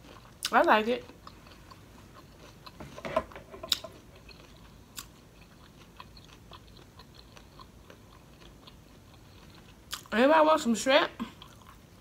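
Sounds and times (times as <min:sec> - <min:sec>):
wet chewing and mouth clicks: 0:00.0 - 0:03.0, 0:03.7 - 0:10.2.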